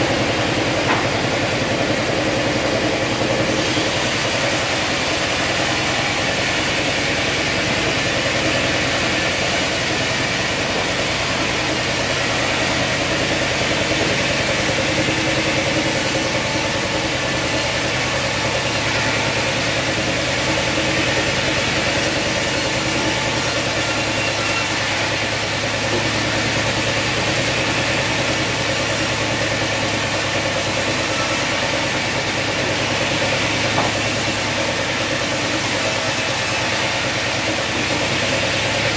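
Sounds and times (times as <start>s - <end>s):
band saw cutting log: 0.0s - 38.9s.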